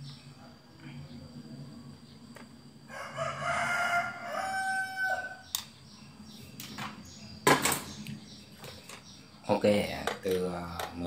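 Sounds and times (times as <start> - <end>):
rooster crowing: 2.9 - 5.5.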